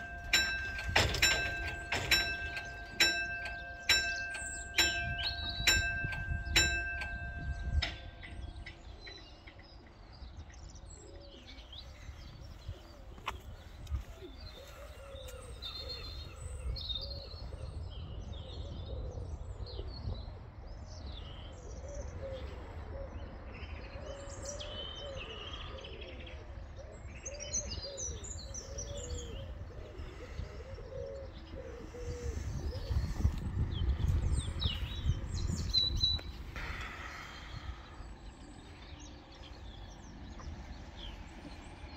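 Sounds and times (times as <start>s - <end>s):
small birds chirping: 27.3s - 41.9s
pigeon cooing: 28.6s - 33.3s.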